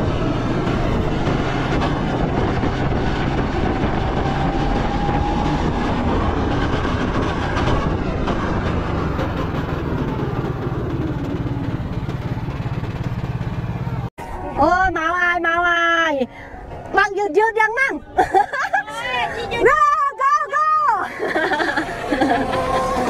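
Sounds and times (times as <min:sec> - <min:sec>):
go-kart motor rattling drone: 0:00.0 - 0:14.1, 0:21.1 - 0:23.0.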